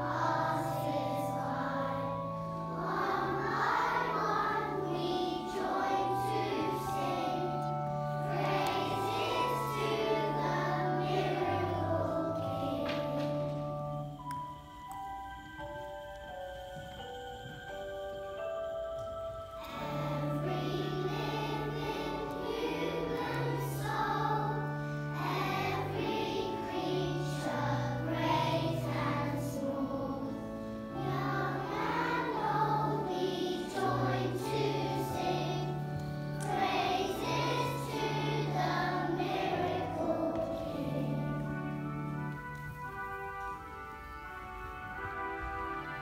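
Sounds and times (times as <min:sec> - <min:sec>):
children singing in unison: 0:00.0 - 0:13.8, 0:19.6 - 0:42.3
instrumental accompaniment: 0:00.0 - 0:46.0.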